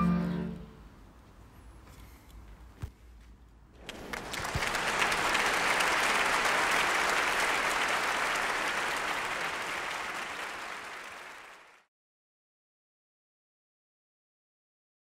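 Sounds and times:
applause: 3.8s - 11.9s.

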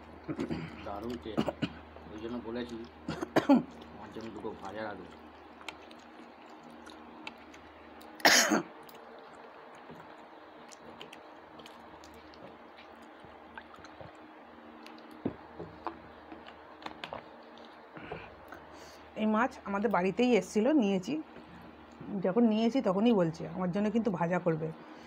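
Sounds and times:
mouth sounds of eating: 0.2s - 18.7s
person coughing: 0.3s - 1.8s, 3.1s - 3.7s, 8.2s - 8.7s.

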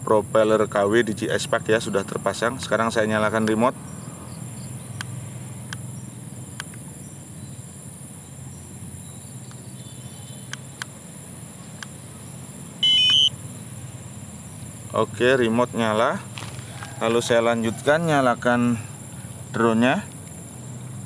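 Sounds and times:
faint clicks: 11.7s - 12.0s
electronic beeps: 12.8s - 13.4s.

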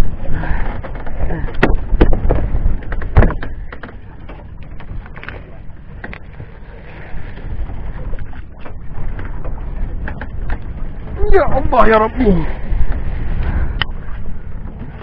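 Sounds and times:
steady low rumble: 0.0s - 15.0s
small knocks and rattles: 0.8s - 5.4s.

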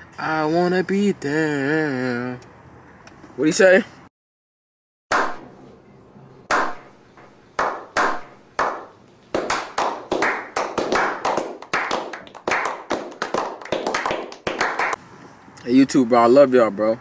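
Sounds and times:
hands clapping: 7.6s - 15.0s
small group applause: 9.4s - 15.0s.

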